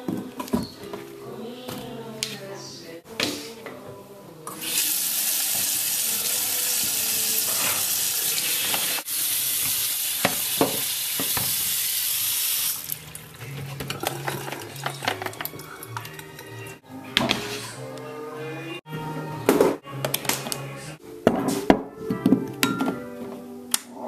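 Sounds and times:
kitchen tap running: 0:04.5 - 0:16.6.

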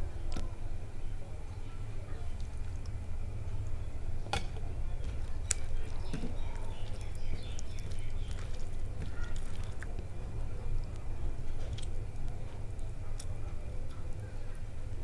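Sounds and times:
steady low hum: 0:00.0 - 0:15.0
fingers squelching food: 0:05.0 - 0:14.6.

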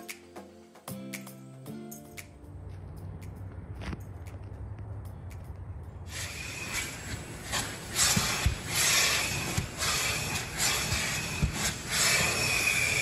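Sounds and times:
vacuum hose rushing hiss: 0:06.1 - 0:13.0.

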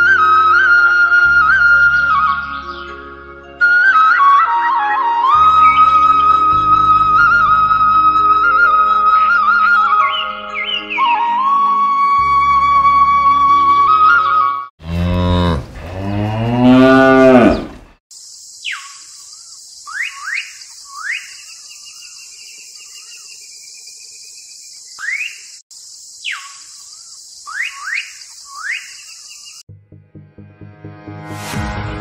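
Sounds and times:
flute music: 0:00.0 - 0:14.7
cow mooing: 0:14.8 - 0:18.0.

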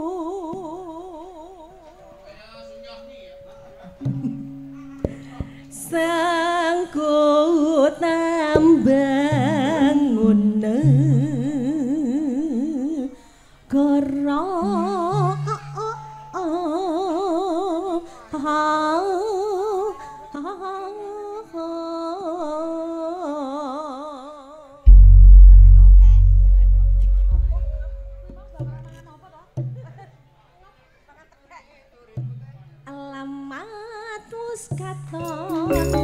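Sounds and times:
low sustained accompaniment: 0:24.9 - 0:28.8.

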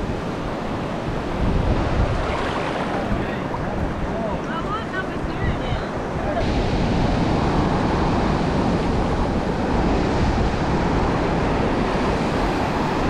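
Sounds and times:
surf washing on sand: 0:00.0 - 0:13.0
wind buffeting microphone: 0:00.0 - 0:13.0.

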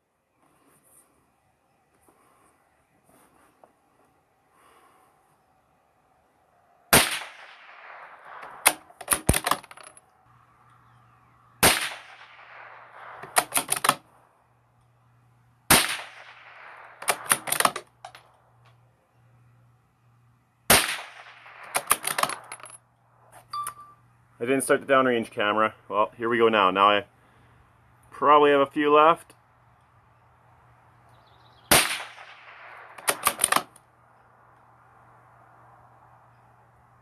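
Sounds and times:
rifle shots with echo: 0:06.9 - 0:09.5, 0:11.6 - 0:13.7, 0:15.7 - 0:17.8, 0:20.7 - 0:22.5, 0:31.7 - 0:33.7.

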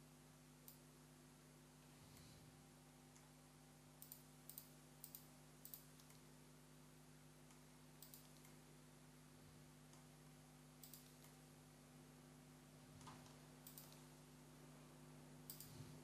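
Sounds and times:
low steady hum: 0:00.0 - 0:16.0
computer mouse clicks: 0:00.6 - 0:00.8, 0:04.0 - 0:06.3, 0:07.4 - 0:08.6, 0:10.8 - 0:11.4, 0:13.0 - 0:14.1, 0:15.4 - 0:16.0.

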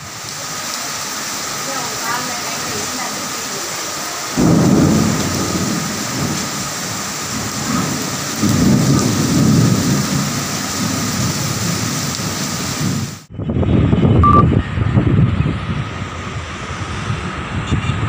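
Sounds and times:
heavy rain pouring: 0:00.0 - 0:18.0
thunder rumbling: 0:04.3 - 0:18.0.

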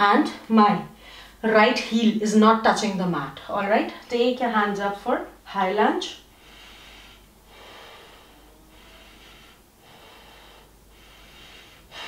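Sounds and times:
person breathing slowly: 0:06.3 - 0:12.0.

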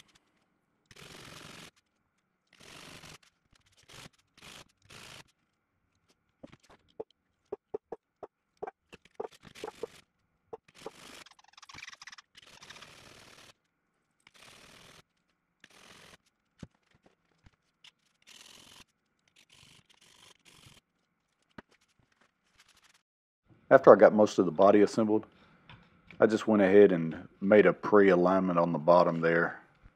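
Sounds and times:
blade and tools tapping bench: 0:07.5 - 0:08.0, 0:09.2 - 0:09.9.

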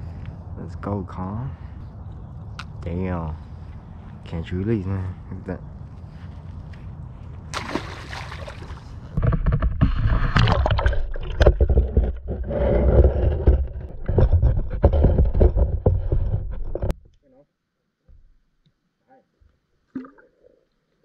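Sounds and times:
underwater muffled rumble: 0:09.1 - 0:16.9
knocks and clicks of water: 0:09.1 - 0:17.0.

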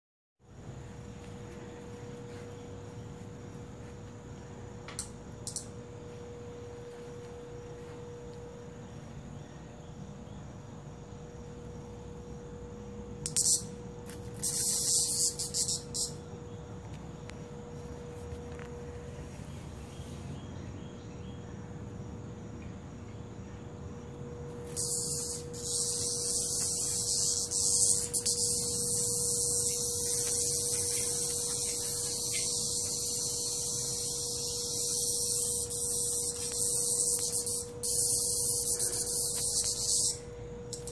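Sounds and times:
steady hum: 0:00.4 - 0:40.9
cicada buzzing: 0:02.2 - 0:08.2, 0:10.2 - 0:18.9, 0:24.5 - 0:40.9.

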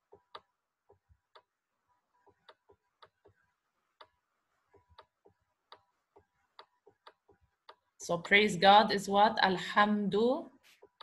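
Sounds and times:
stylus tapping on screen: 0:00.0 - 0:08.5.

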